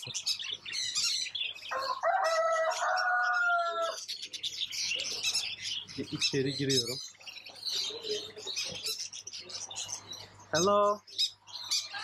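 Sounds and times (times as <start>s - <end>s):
caged small birds chirping: 0.0s - 12.0s
rooster crowing: 1.7s - 4.0s, 11.8s - 12.0s.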